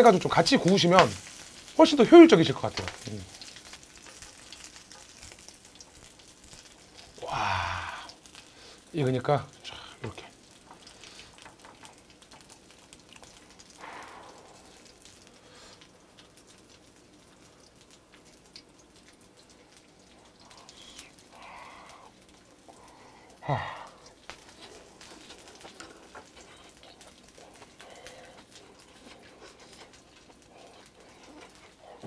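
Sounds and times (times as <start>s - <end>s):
pork sizzling on a grill pan: 0.0s - 32.0s
person grunting: 7.2s - 8.2s, 23.4s - 24.0s
chewing: 10.2s - 32.0s.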